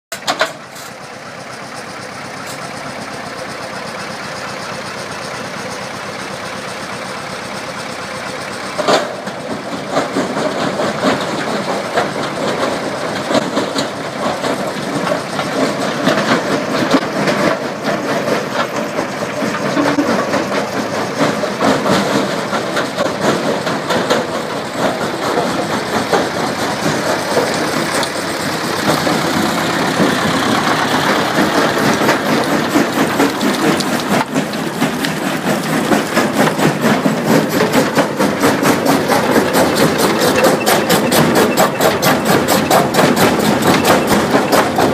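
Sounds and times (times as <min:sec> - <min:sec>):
mobile crusher running: 0:00.1 - 0:44.9
concrete crushing and grinding: 0:10.0 - 0:44.9
rubble pouring into steel skip: 0:25.5 - 0:44.9.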